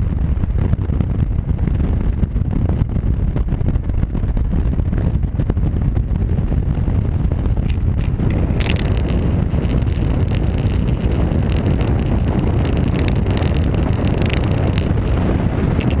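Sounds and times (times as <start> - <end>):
motorcycle engine and road rumble: 0.0 - 16.0
wind rushing over microphone: 0.0 - 16.0
scattered clicks: 7.6 - 16.0.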